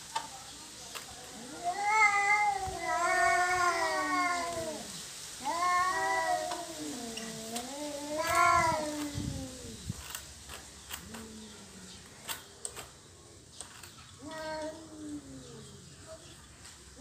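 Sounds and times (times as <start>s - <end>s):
cat yowling: 1.4s - 9.8s, 14.2s - 15.7s
faint clicks: 9.9s - 15.2s.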